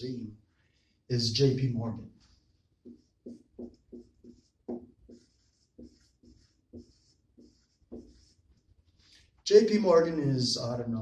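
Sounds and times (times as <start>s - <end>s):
marker squeaking on whiteboard: 2.2s - 9.1s.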